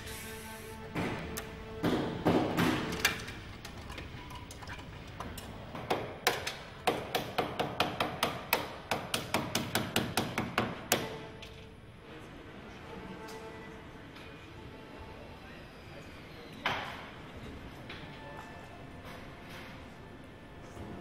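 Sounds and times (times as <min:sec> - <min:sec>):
knocks and clatter: 0:00.9 - 0:11.6
hammer tapping on car door frame: 0:05.8 - 0:11.1.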